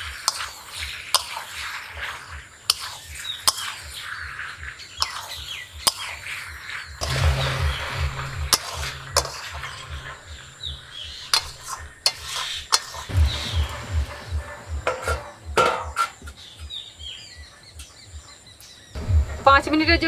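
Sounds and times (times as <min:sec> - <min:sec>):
metal spatula scraping a wok: 0:00.0 - 0:03.8, 0:07.0 - 0:16.2
light sizzle: 0:00.0 - 0:15.0
birds chirping: 0:00.0 - 0:20.0
low pulsing: 0:07.0 - 0:15.6, 0:19.0 - 0:20.0
steel lid clattering: 0:14.8 - 0:16.2.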